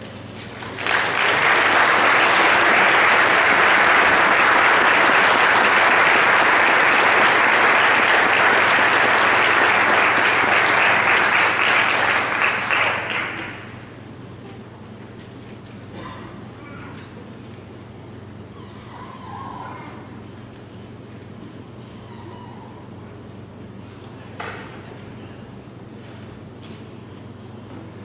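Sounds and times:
congregation applauding: 0:00.5 - 0:14.0.

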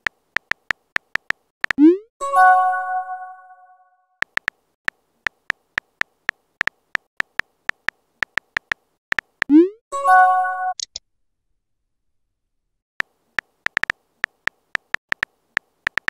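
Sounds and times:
electronic chime chord: 0:02.2 - 0:03.8
phone keyboard tap clicks: 0:04.2 - 0:04.6, 0:13.7 - 0:16.0.

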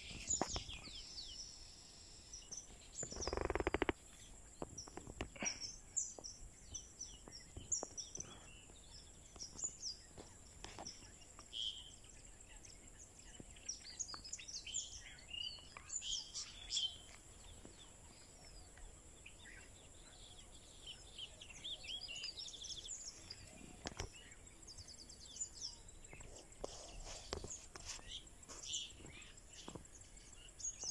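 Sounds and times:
small birds chirping: 0:00.0 - 0:30.9.

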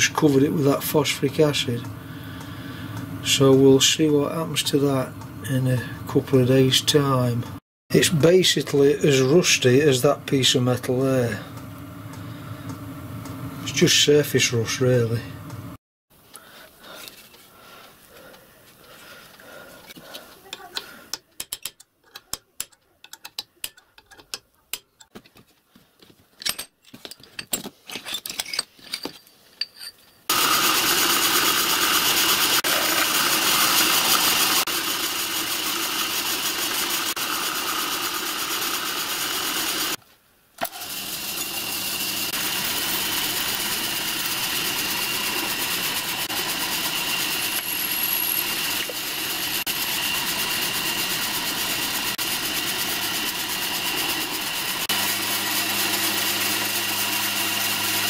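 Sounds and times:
hammer tapping punch on steel: 0:20.8 - 0:25.0
milling machine cutting metal: 0:30.3 - 0:40.0, 0:40.6 - 0:58.0.

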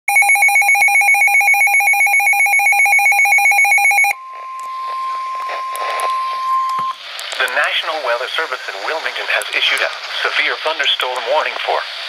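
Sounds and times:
steady single-pitched alarm tone: 0:00.1 - 0:07.0
warbling two-tone siren alarm: 0:00.1 - 0:07.0.

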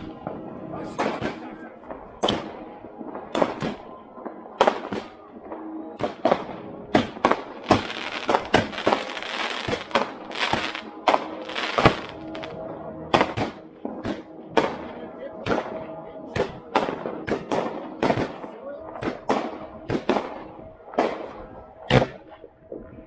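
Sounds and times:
fireworks bangs and cracks: 0:00.0 - 0:03.8, 0:04.6 - 0:12.5
rushing hiss of fireworks: 0:07.7 - 0:10.8, 0:11.4 - 0:12.5.

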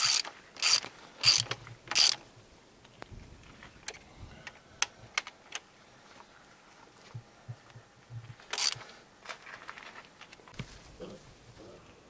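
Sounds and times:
ratchet wrench clicking: 0:00.0 - 0:02.2, 0:08.5 - 0:08.8.

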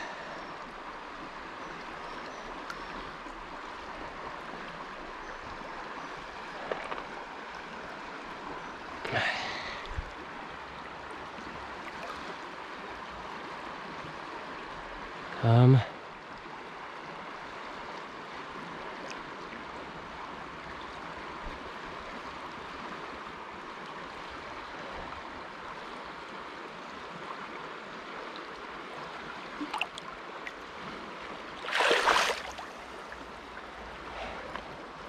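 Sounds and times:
river water running: 0:00.0 - 0:35.0
fish splashing: 0:31.6 - 0:32.8.

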